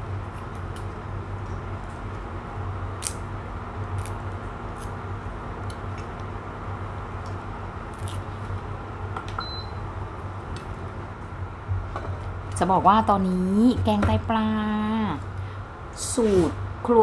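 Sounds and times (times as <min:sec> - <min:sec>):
induction cooktop humming: 0:00.0 - 0:17.0
short electronic beep: 0:09.4 - 0:09.8.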